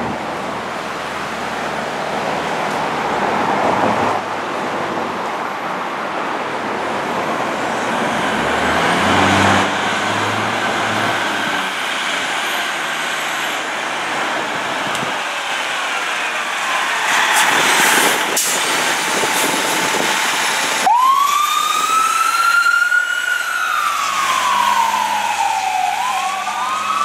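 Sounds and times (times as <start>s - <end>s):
diesel engine accelerating: 7.3s - 27.0s.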